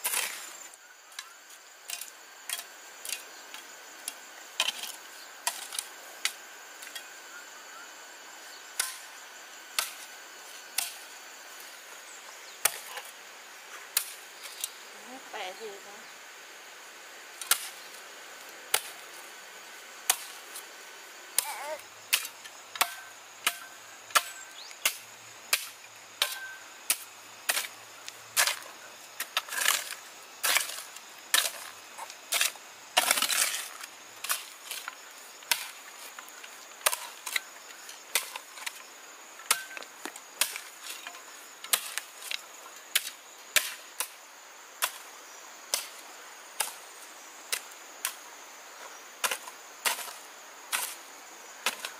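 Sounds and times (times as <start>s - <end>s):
hand tool chopping strikes: 22.8s - 27.0s, 39.5s - 39.8s.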